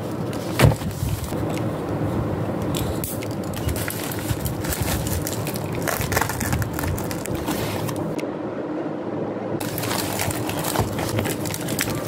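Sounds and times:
plastic mailer crinkling: 3.4s - 8.2s, 9.6s - 12.0s.

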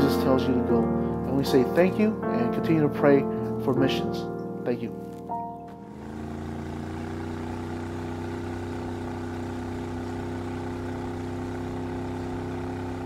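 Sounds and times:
boat engine running: 5.5s - 13.0s.

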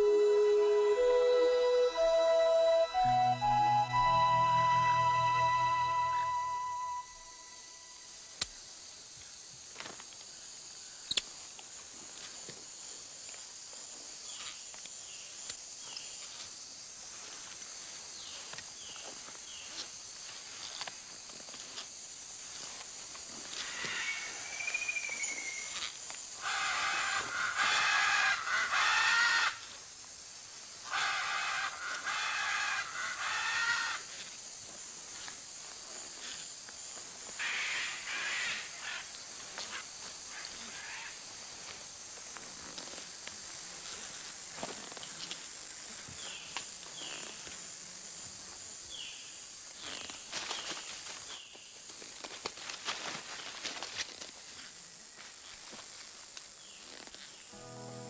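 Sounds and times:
wavering whistle call: 0.0s - 8.0s
insects hissing: 7.1s - 52.3s.

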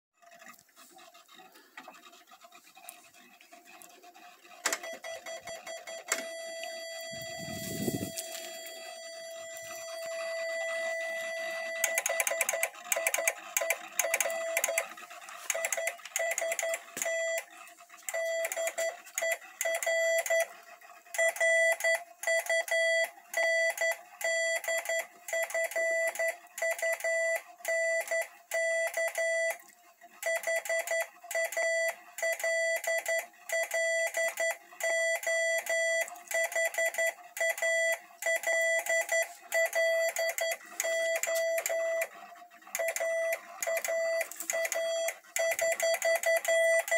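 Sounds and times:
tape transmitter clicking: 4.6s - 17.5s
morse code tone: 4.6s - 20.6s, 21.2s - 29.6s, 30.2s - 46.9s.

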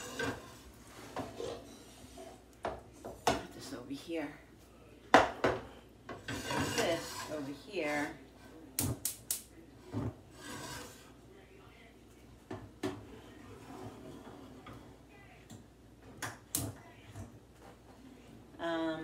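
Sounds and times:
soft rubbing and shuffling: 17.4s - 18.3s.

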